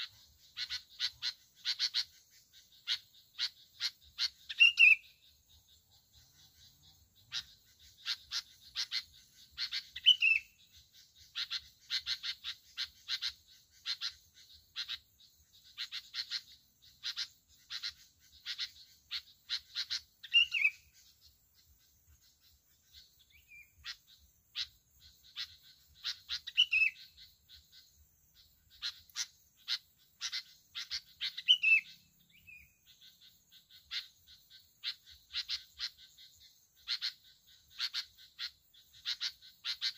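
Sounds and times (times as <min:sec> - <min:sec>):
bird chattering notes: 0:06.4 - 0:21.2, 0:22.2 - 0:27.8, 0:28.4 - 0:34.2.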